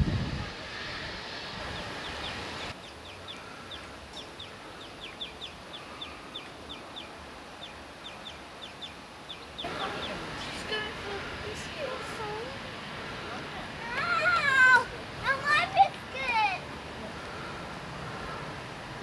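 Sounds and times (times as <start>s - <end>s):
steady background hiss: 0.0s - 19.0s
small bird chirping: 1.7s - 10.8s.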